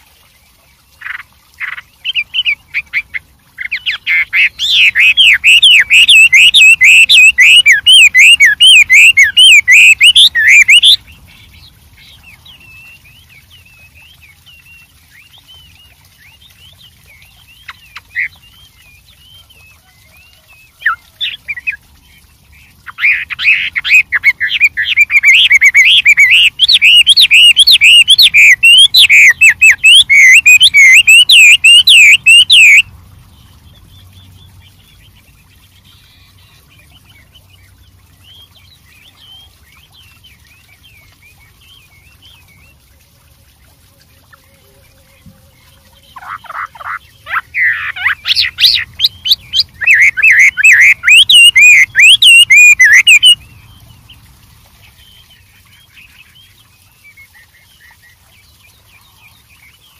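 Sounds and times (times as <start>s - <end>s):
thrush singing whistled song: 2.1s - 21.8s, 22.9s - 32.9s, 46.1s - 53.8s.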